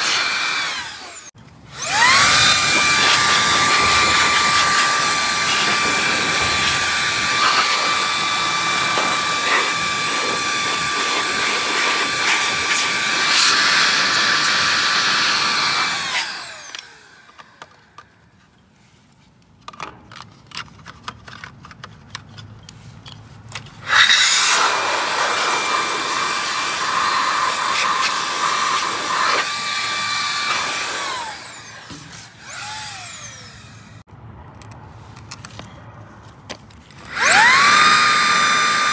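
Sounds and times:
power tool motor whining: 0:00.0 - 0:17.8, 0:23.8 - 0:34.1, 0:37.0 - 0:38.9.

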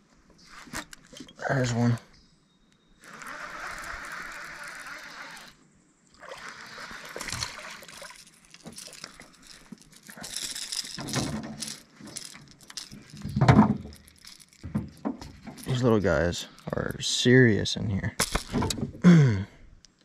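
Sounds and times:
water splashing and sloshing: 0:03.1 - 0:16.1.

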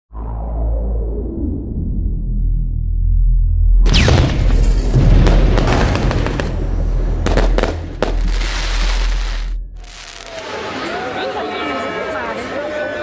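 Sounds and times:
fireworks bursting and crackling: 0:03.9 - 0:10.7.

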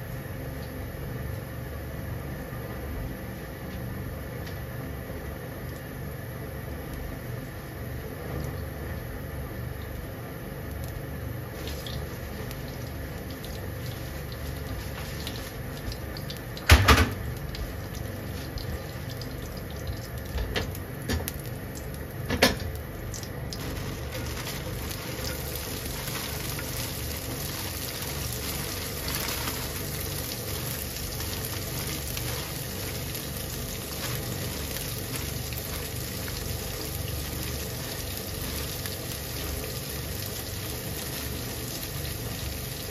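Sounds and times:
faint oil sizzle: 0:00.0 - 0:42.9
oil hissing in a frying pan: 0:09.2 - 0:42.9.

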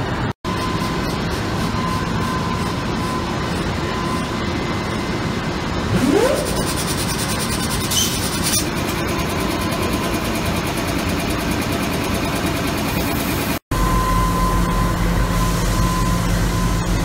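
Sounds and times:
diesel locomotive idling: 0:00.0 - 0:17.0
short rising whine: 0:00.5 - 0:08.3.

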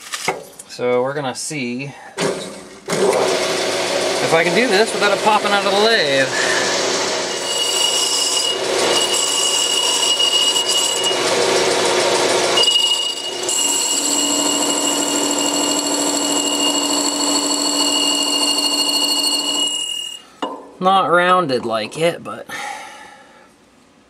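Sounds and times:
metal lathe cutting: 0:02.9 - 0:20.2
high whining tones: 0:12.4 - 0:20.4.

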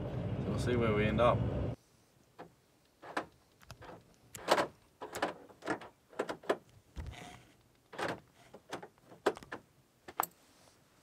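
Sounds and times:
car door handle and latch clicking: 0:02.4 - 0:07.2, 0:07.9 - 0:10.3.

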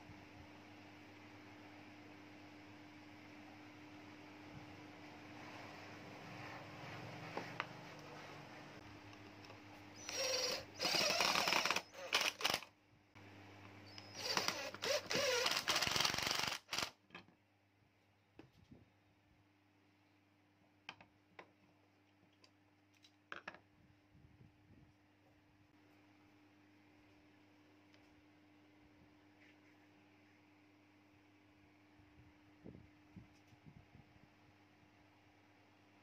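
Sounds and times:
cordless drill boring into wood: 0:10.0 - 0:12.7, 0:13.9 - 0:17.0.

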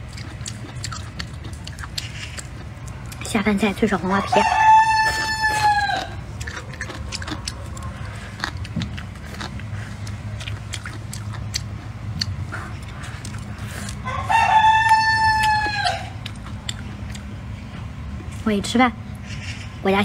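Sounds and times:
chewing and clicking of eating: 0:00.0 - 0:19.6
rooster crowing: 0:04.3 - 0:06.3, 0:14.0 - 0:16.2.

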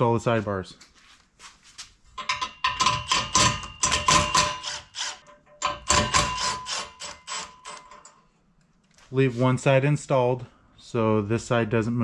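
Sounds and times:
metallic ringing: 0:02.2 - 0:08.3.

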